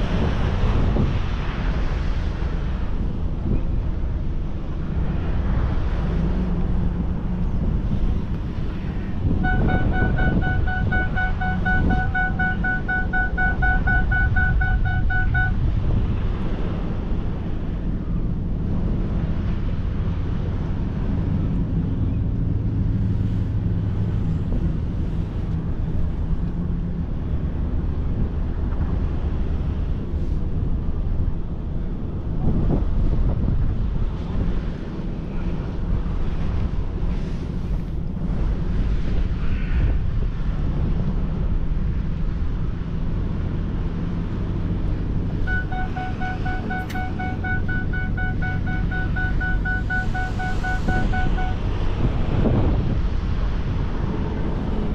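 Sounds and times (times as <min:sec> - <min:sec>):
vehicle engine and tyre rumble: 0:00.0 - 0:54.9
high rapidly pulsing beep: 0:09.4 - 0:15.6, 0:45.5 - 0:51.6.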